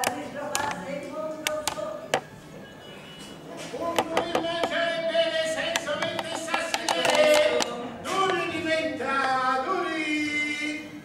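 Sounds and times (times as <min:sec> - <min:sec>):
voices singing together: 0:00.0 - 0:02.2, 0:03.9 - 0:11.0
sharp clicks and knocks: 0:00.0 - 0:02.3, 0:03.9 - 0:04.8, 0:05.6 - 0:08.4.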